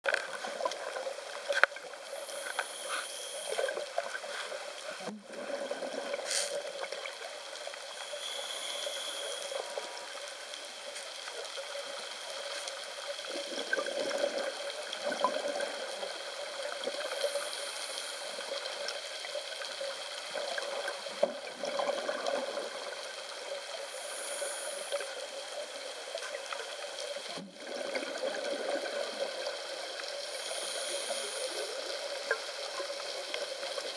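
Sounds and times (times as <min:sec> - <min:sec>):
muffled underwater wash: 0:00.1 - 0:33.9
regulator hiss on inhalation: 0:02.1 - 0:03.8, 0:07.9 - 0:10.0, 0:16.9 - 0:18.8, 0:23.8 - 0:25.2, 0:30.1 - 0:32.0
exhaled air bubbling: 0:05.1 - 0:10.1, 0:13.1 - 0:17.2, 0:20.4 - 0:24.9, 0:27.4 - 0:29.6.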